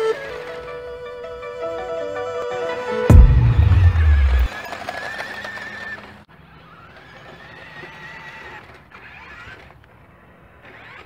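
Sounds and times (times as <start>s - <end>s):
toy truck electric motor whine: 4.5s - 11.0s.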